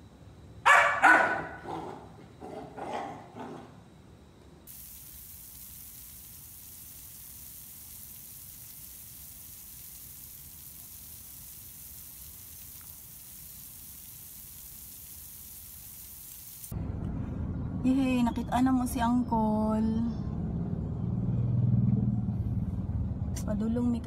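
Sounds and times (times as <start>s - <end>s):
water spraying onto wet surface: 4.7s - 16.7s.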